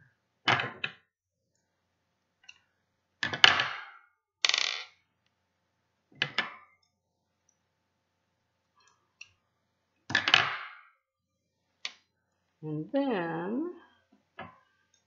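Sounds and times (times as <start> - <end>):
objects clicking on wooden table: 6.2 - 6.7.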